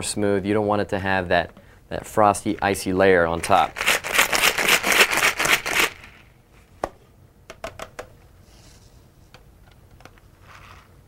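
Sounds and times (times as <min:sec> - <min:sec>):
ice rattling in cocktail shaker: 0:03.4 - 0:06.1.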